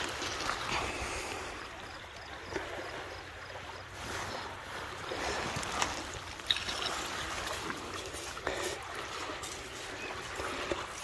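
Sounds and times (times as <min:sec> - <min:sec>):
steady outdoor hiss: 0:00.0 - 0:11.0
footsteps on sand and pebbles: 0:06.8 - 0:11.0.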